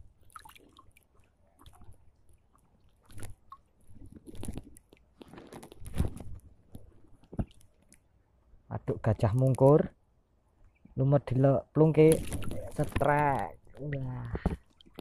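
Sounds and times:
crunching and rustling of dry reeds: 2.8s - 8.0s, 12.1s - 13.9s.

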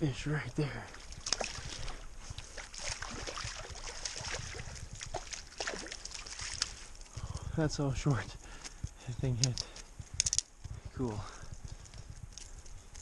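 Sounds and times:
water splashing and sloshing: 0.1s - 7.4s
fish thrashing at the surface: 0.9s - 7.0s.

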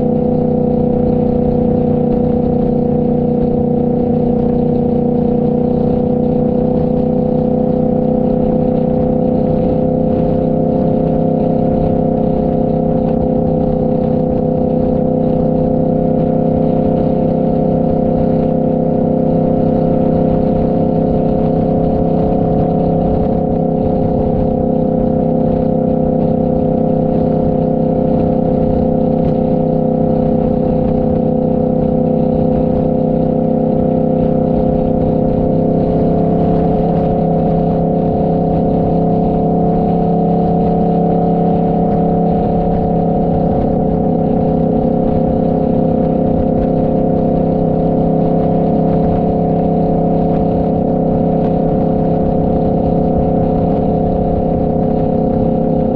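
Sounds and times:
motorcycle engine cruising: 0.0s - 55.9s
wind noise: 0.0s - 55.9s.

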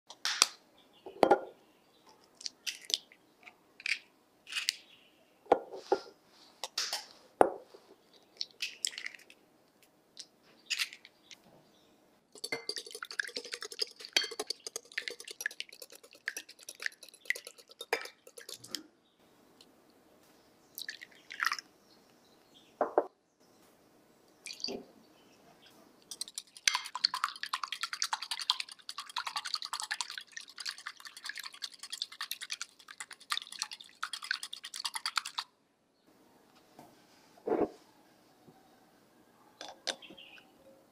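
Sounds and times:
wire whisk beating in glass bowl: 12.4s - 18.7s
eggs cracked on glass bowl: 12.4s - 18.8s.

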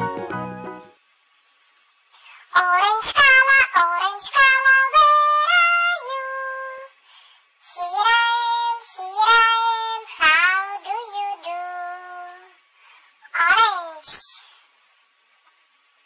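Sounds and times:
high voice singing: 2.5s - 7.0s, 7.6s - 12.6s.

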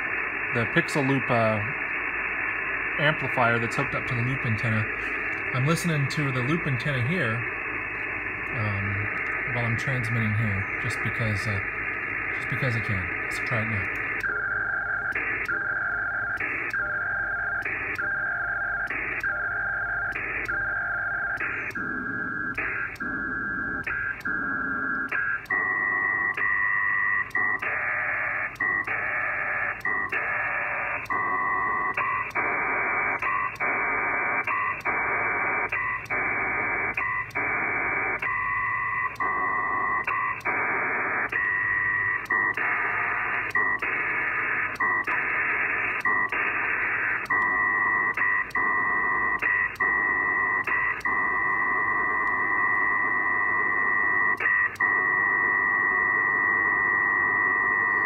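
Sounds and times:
bursts of data tones: 0.0s - 58.0s.

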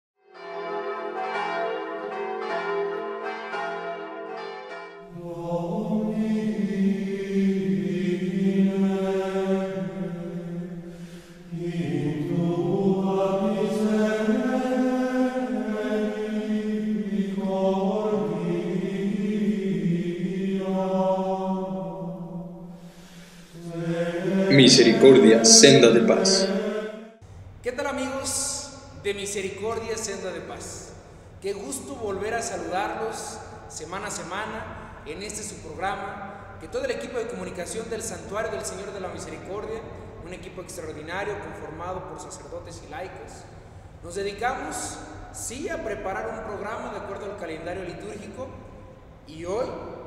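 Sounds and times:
choir chanting: 1.0s - 27.2s.

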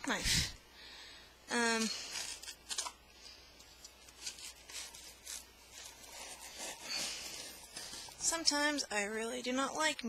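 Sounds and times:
knife scraping cardboard box: 4.1s - 8.3s.

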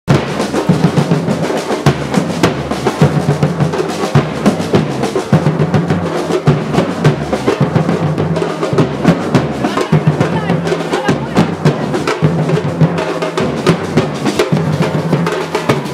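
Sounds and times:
fast drum rhythm: 0.1s - 15.9s.

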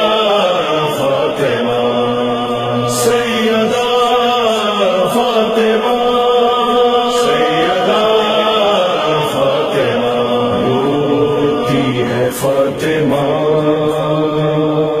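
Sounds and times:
voices chanting a lament: 0.0s - 15.0s.

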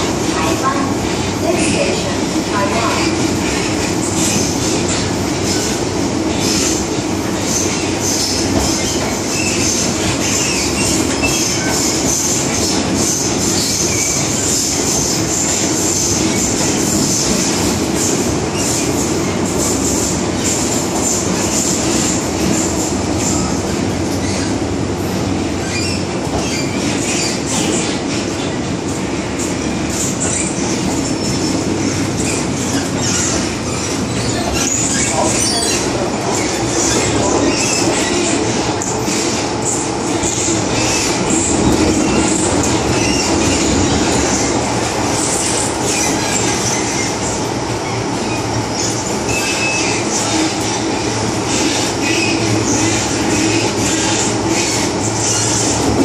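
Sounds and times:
train wheels rumbling on rail: 0.0s - 56.0s
high-pitched wheel squeal: 25.6s - 27.9s, 30.2s - 38.4s, 45.2s - 55.8s.

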